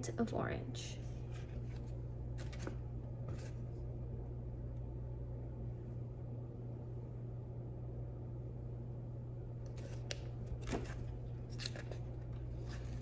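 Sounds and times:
low room hum: 0.0s - 13.0s
book page rustling: 1.1s - 3.7s, 9.7s - 13.0s.

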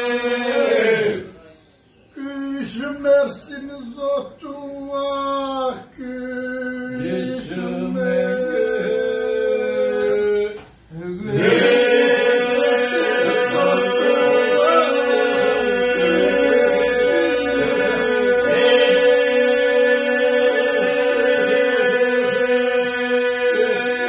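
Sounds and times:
men singing polyphonic song: 6.0s - 24.0s.

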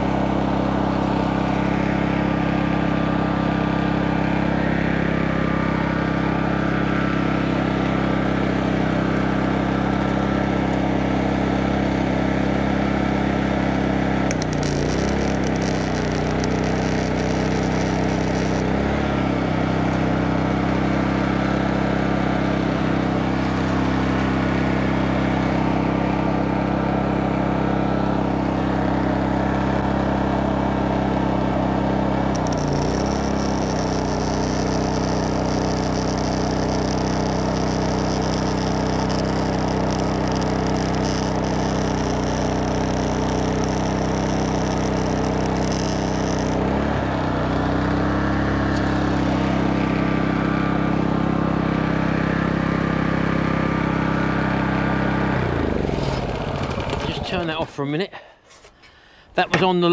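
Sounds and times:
generator engine running: 0.0s - 58.1s
welder arc crackling hiss: 14.3s - 18.7s, 32.3s - 46.6s.

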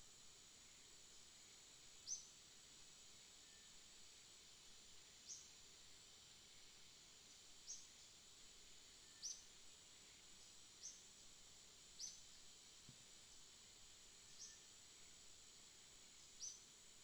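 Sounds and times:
faint steady hiss: 0.0s - 17.0s
faint high-pitched chirps: 2.0s - 2.4s, 9.0s - 11.1s, 11.9s - 12.4s, 14.2s - 15.2s, 16.2s - 16.7s.

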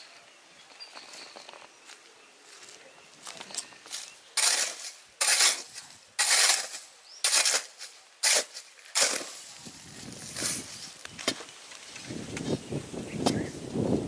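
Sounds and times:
hoe striking stony soil: 3.9s - 9.5s.

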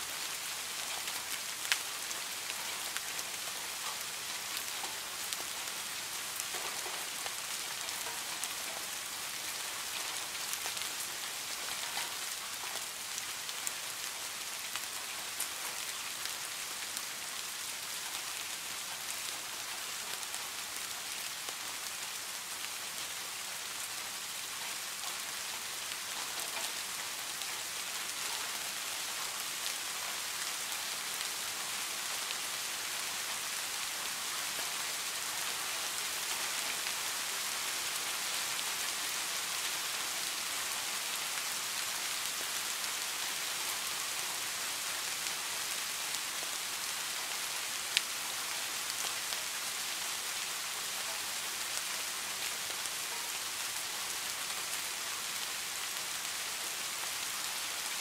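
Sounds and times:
steady rain hiss: 0.0s - 58.0s
raindrop ticks: 11.6s - 12.8s.

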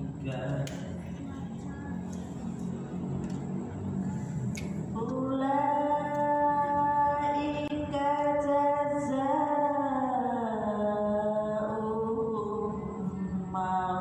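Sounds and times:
person chanting melodic recitation: 4.9s - 14.0s.

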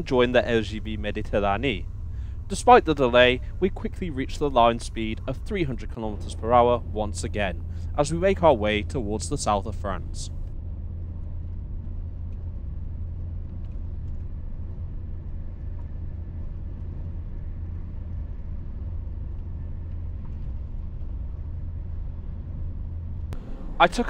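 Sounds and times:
high-speed train rumbling: 0.0s - 10.4s, 23.4s - 24.0s.

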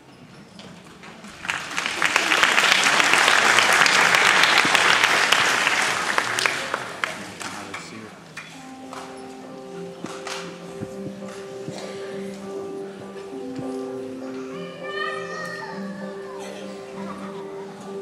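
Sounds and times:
audience applauding: 1.2s - 7.8s.

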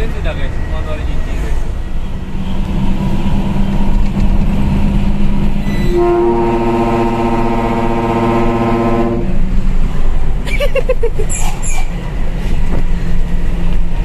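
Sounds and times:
truck diesel engine running: 1.7s - 11.2s
trumpet air horn blast: 5.6s - 9.4s.

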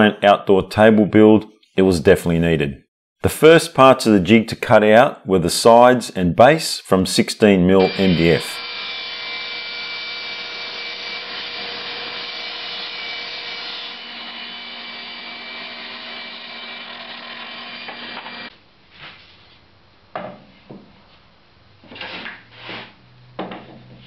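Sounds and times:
table saw whine: 7.8s - 18.5s.

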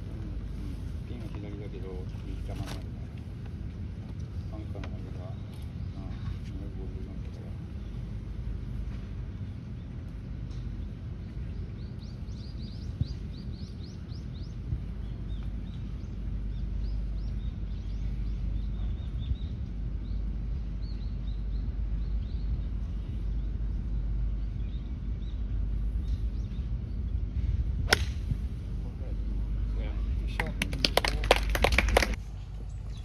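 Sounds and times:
birds chirping: 0.0s - 27.3s
steady outdoor rumble: 0.0s - 33.0s
golf club striking ball: 27.9s - 28.4s.

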